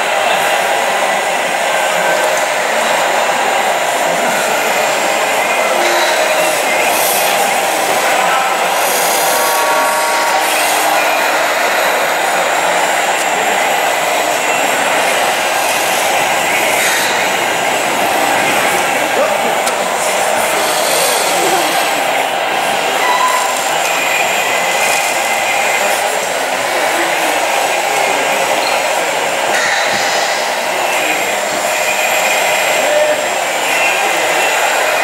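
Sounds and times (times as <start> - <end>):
hydraulic pump whirring hiss: 2.2 - 35.0.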